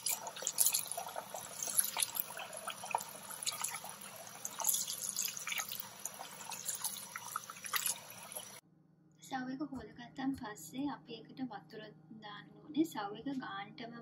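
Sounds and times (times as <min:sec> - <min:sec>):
tap water running into a bowl: 0:00.0 - 0:08.6.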